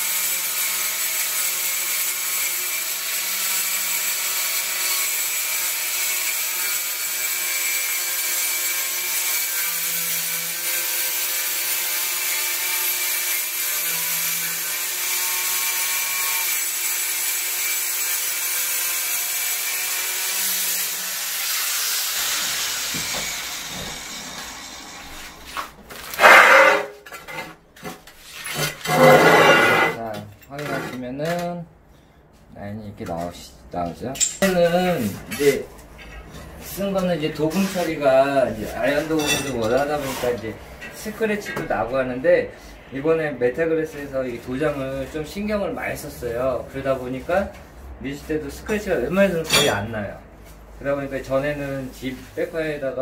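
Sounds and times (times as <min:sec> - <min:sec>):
angle grinder cutting tile: 0:00.0 - 0:27.5, 0:28.4 - 0:30.0.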